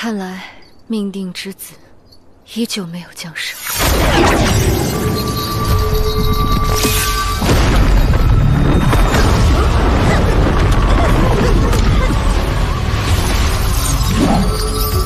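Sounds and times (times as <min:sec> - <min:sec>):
dramatic background music: 0:03.8 - 0:15.0.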